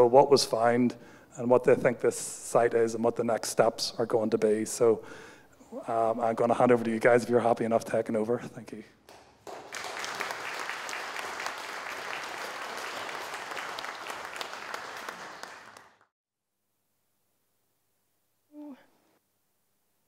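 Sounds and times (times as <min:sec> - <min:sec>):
audience applauding: 0:09.1 - 0:16.1.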